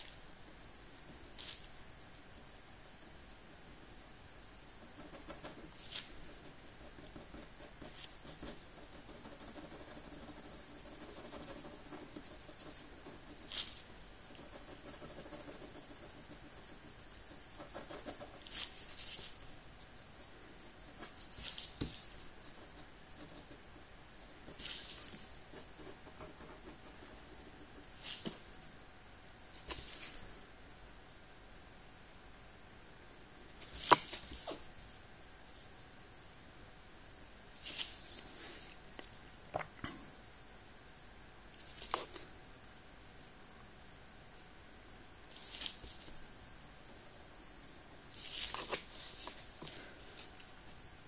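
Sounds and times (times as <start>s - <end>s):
pen scratching on paper: 5.0s - 23.6s, 24.4s - 27.1s.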